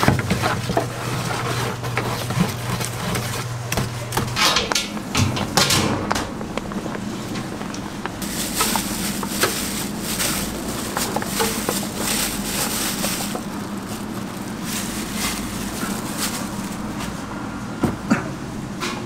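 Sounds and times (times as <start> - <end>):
steady low hum: 0.0 - 19.0
plastic bag crinkling: 6.3 - 17.3.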